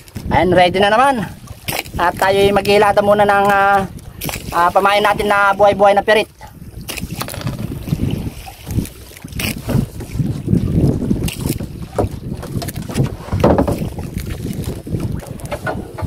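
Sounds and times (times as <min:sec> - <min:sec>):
wind buffeting microphone: 0:00.0 - 0:16.0
knocks in a wooden boat hull: 0:11.9 - 0:13.8.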